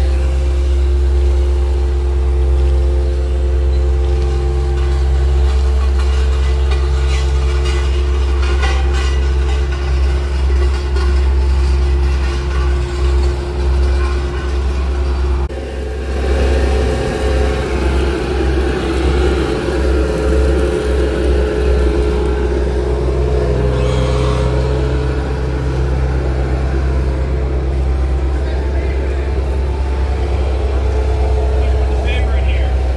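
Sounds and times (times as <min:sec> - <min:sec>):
diesel engine droning: 0:00.0 - 0:32.9.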